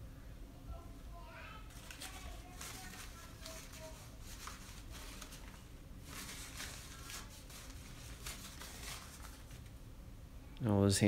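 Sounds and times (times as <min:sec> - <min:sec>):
faint low hum: 0:00.0 - 0:11.0
paper towel crinkling: 0:01.6 - 0:09.8.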